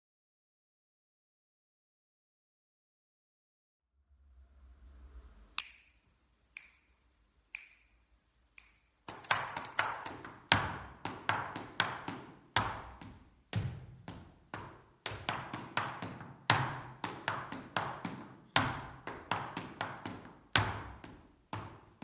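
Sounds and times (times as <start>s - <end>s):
hard shoes tapping and stamping: 9.0s - 22.0s.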